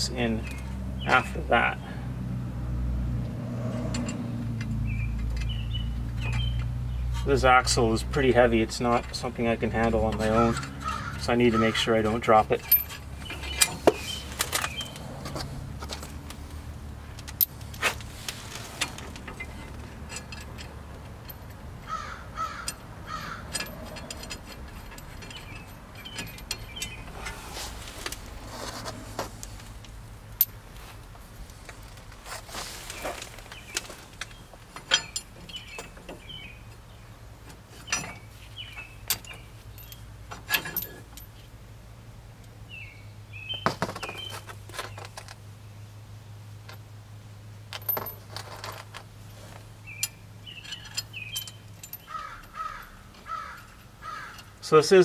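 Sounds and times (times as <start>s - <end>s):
metallic clinks of nuts and washers: 3.8s - 16.2s, 17.2s - 28.3s, 30.3s - 30.6s, 33.0s - 36.8s, 37.5s - 41.5s, 47.7s - 55.0s.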